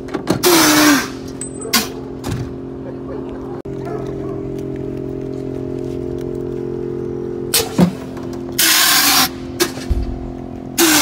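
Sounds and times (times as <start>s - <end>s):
steady low hum: 1.0s - 11.0s
low thump: 9.8s - 10.4s.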